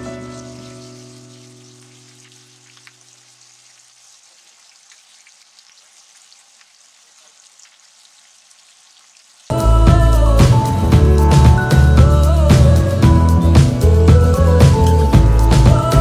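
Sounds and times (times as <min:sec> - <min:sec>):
music: 0:00.0 - 0:02.2, 0:09.5 - 0:16.0
fish frying in oil: 0:00.0 - 0:09.5.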